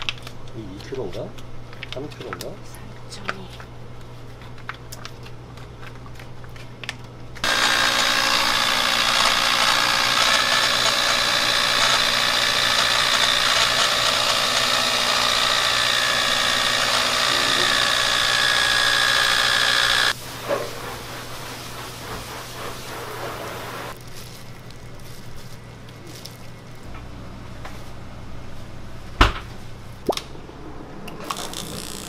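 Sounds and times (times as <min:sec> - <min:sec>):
electric mixer motor running: 0:07.4 - 0:20.2.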